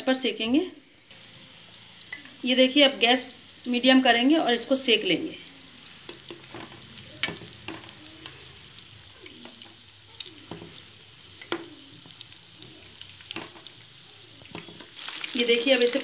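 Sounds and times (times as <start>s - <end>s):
food sizzling in hot oil: 0.0s - 16.0s
spatula knocking and scraping pan: 13.3s - 13.7s.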